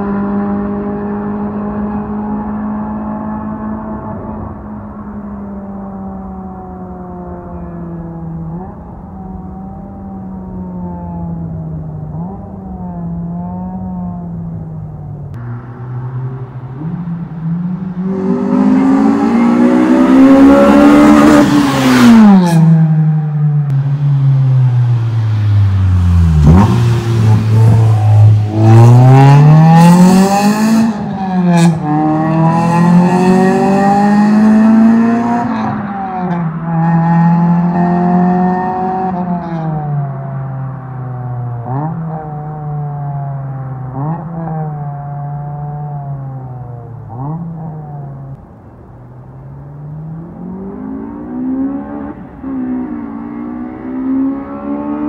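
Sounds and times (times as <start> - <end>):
car driving past at speed: 15.3 - 41.9
car accelerating through gears: 15.4 - 23.2, 25.4 - 40.0, 50.0 - 55.0.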